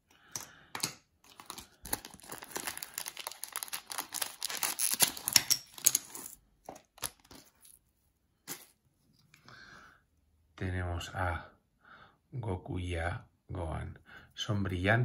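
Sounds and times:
plastic foil pack crinkling: 1.2 - 7.8.

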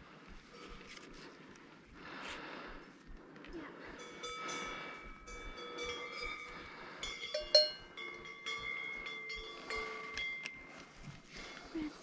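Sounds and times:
cowbells clanking: 4.0 - 11.4.

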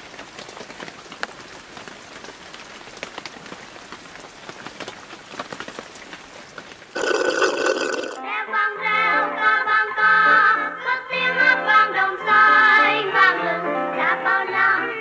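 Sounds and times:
rain falling on water: 0.0 - 8.2.

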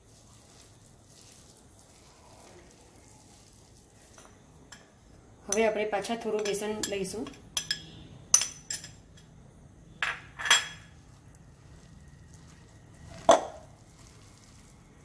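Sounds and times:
clinks against glass bowl: 6.4 - 9.3.

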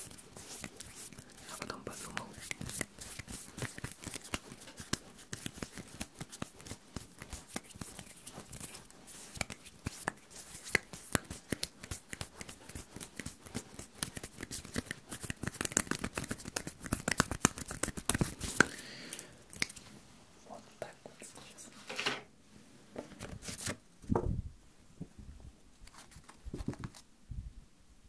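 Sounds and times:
hands rubbing together: 0.0 - 18.8.

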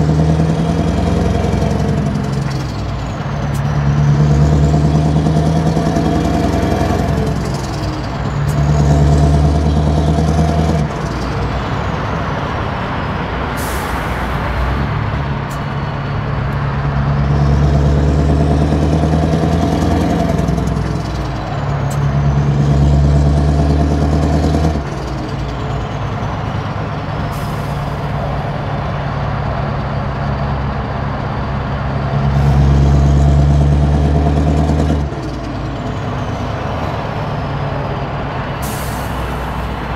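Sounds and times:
diesel truck engine pulling: 0.0 - 39.9
air brake hisses: 13.5 - 14.5, 38.6 - 39.8.

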